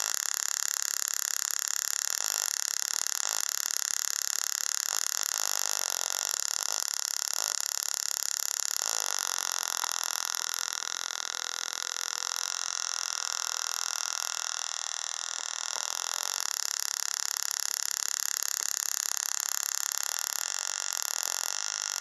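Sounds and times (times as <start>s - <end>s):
spark gap raspy buzz: 4.7s - 13.1s, 13.9s - 22.0s.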